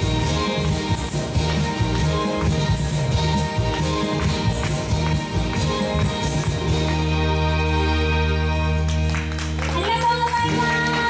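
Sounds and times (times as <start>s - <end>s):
percussion hits: 0.0s - 8.0s
live pop band playing: 0.0s - 11.0s.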